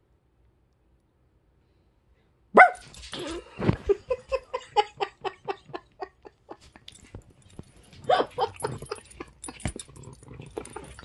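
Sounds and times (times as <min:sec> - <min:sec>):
dog barking: 0:02.5 - 0:02.9.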